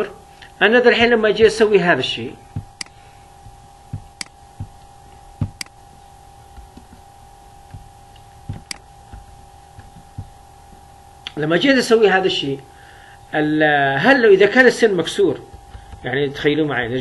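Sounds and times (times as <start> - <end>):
faint electrical hum: 0.0 - 17.0
computer mouse clicks: 2.8 - 3.0, 5.4 - 5.8
soft knocks: 5.4 - 5.6.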